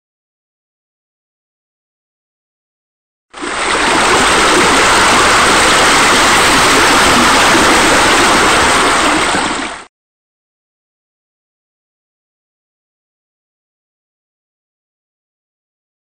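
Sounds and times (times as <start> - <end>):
waterfall spilling into a pool: 3.4 - 9.9.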